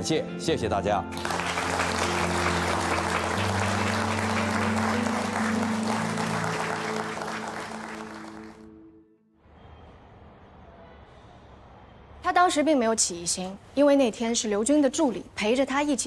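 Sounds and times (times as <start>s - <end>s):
background music with low chords: 0.0s - 9.0s
audience applauding: 1.1s - 8.7s.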